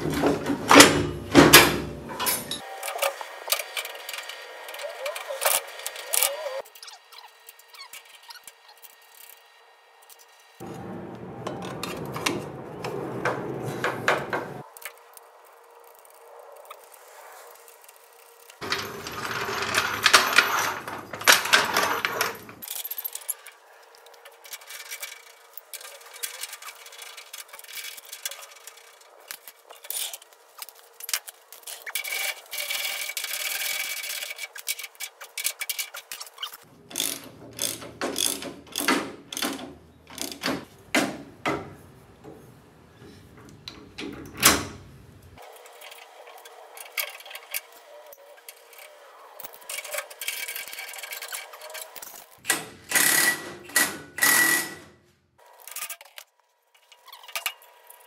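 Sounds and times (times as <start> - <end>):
metal scraping and clinking: 2.1 - 9.4, 15.9 - 38.4, 45.4 - 52.4
wrench ratcheting strokes: 31.7 - 40.4, 52.9 - 54.8.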